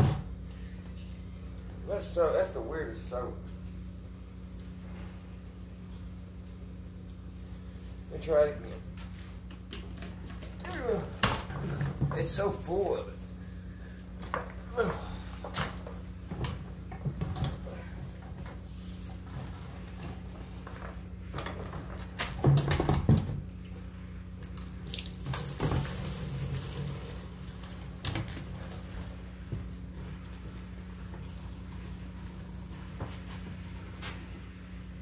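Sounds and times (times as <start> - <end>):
soapy liquid pouring into bucket: 24.5 - 34.0.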